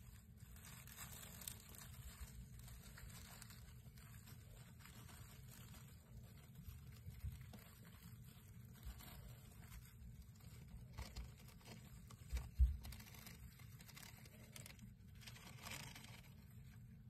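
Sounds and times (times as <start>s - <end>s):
light scratching and rustling: 0.0s - 17.0s
mice scurrying and rummaging: 0.0s - 17.0s.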